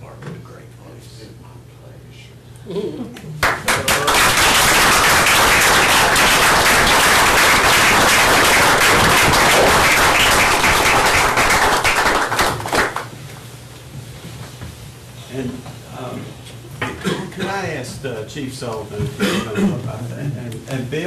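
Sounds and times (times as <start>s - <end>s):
audience applauding: 3.4s - 13.1s.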